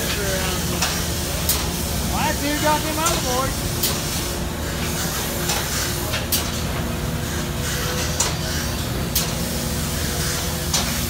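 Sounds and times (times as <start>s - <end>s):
sawmill machinery humming: 0.0s - 7.9s.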